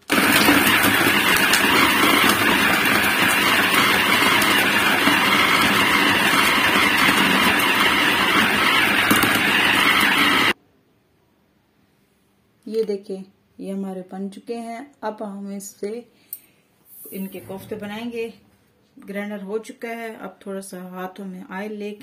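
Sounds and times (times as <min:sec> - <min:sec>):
electric food chopper running: 0:00.0 - 0:10.6.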